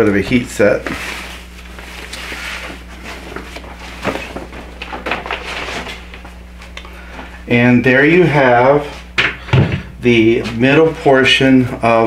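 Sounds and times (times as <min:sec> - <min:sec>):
plastic sheet rustling: 0:00.0 - 0:06.8.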